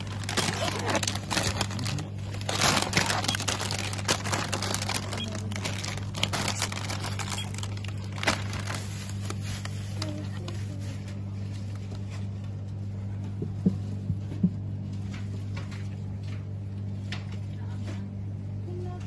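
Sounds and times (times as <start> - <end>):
plastic crinkling and rustling: 0.0 - 13.0
low hum: 0.0 - 19.0.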